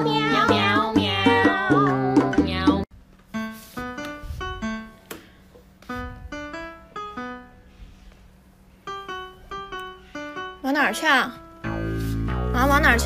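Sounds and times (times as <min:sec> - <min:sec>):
light keyboard melody: 0:03.2 - 0:13.0.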